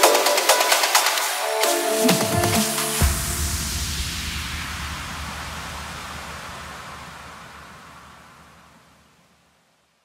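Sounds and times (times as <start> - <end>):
electronic music: 0.0 - 5.4.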